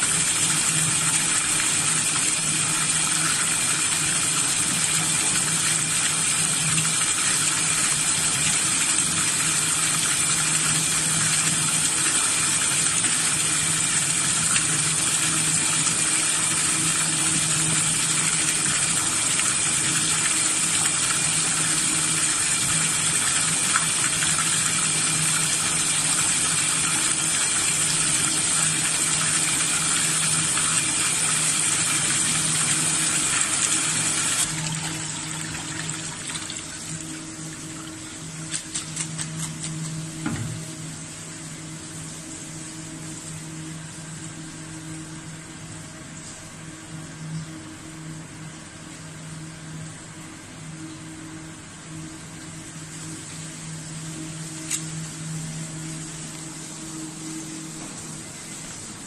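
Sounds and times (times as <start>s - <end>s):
water splashing from hose: 0.0s - 40.6s
low machine hum: 0.0s - 59.0s.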